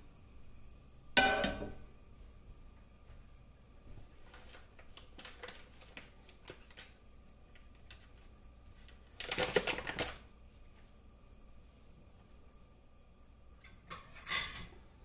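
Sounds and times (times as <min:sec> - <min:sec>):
rapid clicking and crackling: 0:08.7 - 0:10.2.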